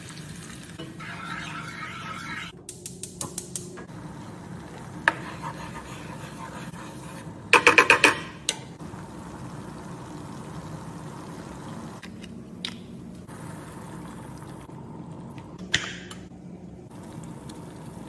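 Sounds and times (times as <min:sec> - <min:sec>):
onions simmering: 0:00.0 - 0:01.2, 0:03.9 - 0:07.5, 0:08.8 - 0:12.5, 0:13.1 - 0:15.6, 0:16.5 - 0:18.0
wooden spoon scraping a pan: 0:01.0 - 0:02.5, 0:05.1 - 0:07.3.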